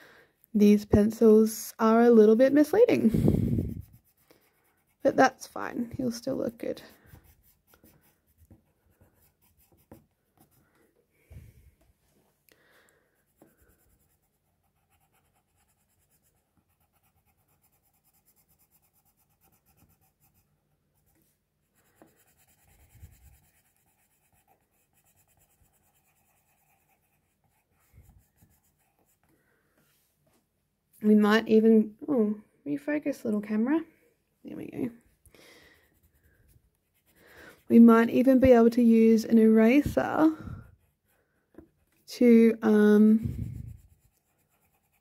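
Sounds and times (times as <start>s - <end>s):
pencil scratching on paper: 2.0s - 10.8s, 13.2s - 29.3s, 35.8s - 45.0s.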